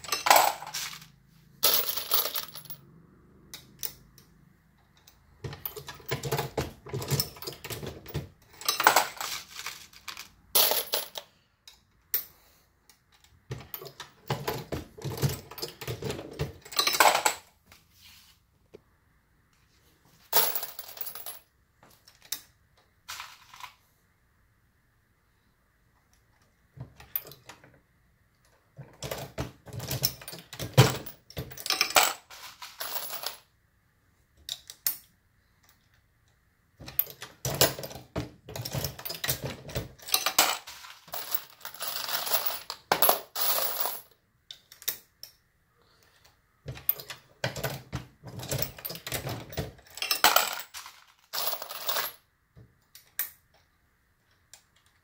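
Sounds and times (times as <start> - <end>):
brass cartridge cases clinking: 0.0 - 2.7, 38.6 - 43.9, 48.5 - 52.1.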